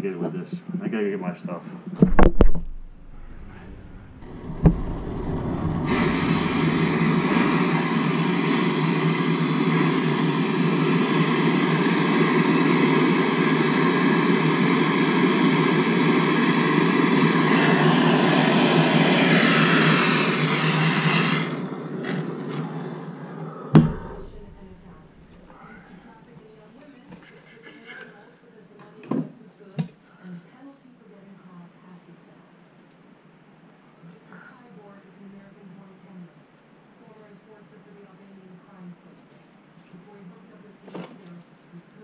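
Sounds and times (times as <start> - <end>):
sharp knock: 2.0 - 7.2, 23.8 - 25.1
gas torch hissing: 2.7 - 12.1, 16.4 - 26.2.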